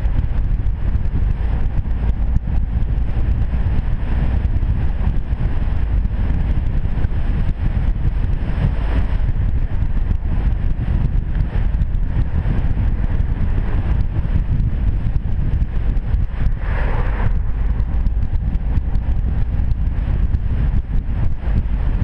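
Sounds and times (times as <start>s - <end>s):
car engine cruising: 0.0s - 22.0s
wind buffeting microphone: 0.0s - 22.0s.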